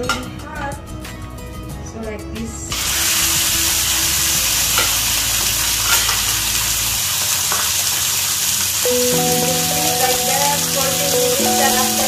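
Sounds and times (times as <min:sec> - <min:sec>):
music with sustained notes: 0:00.0 - 0:07.2, 0:08.8 - 0:12.0
meat sizzling in a frying pan: 0:02.7 - 0:12.0.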